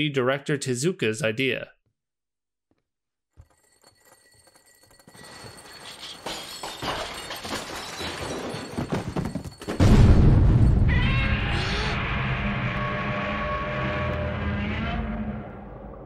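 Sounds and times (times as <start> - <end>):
clattering and breaking: 3.4 - 9.9.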